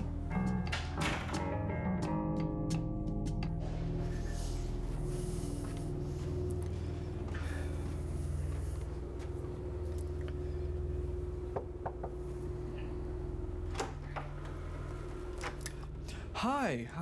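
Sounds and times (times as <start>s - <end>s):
steady low hum: 0.0s - 17.0s
knocking on wooden door: 11.6s - 12.2s.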